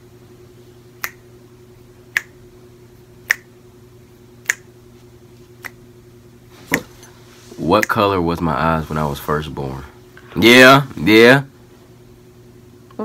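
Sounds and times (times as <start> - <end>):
faint steady hum: 0.0 - 13.0
fingers snapping: 1.0 - 1.2, 2.1 - 2.4, 3.3 - 3.5, 4.4 - 4.7, 5.6 - 5.8, 6.7 - 6.9.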